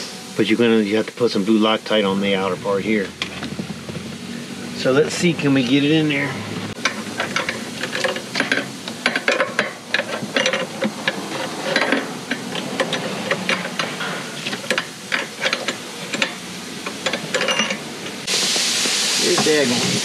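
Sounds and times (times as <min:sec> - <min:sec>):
hand tools clicking and scraping: 0:06.7 - 0:18.3.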